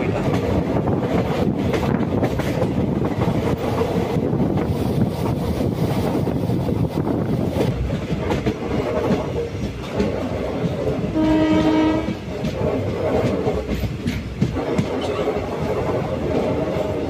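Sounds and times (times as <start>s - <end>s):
train rumble: 0.0s - 17.0s
wheels clacking over rail joints: 7.4s - 17.0s
train horn blast: 11.1s - 12.2s.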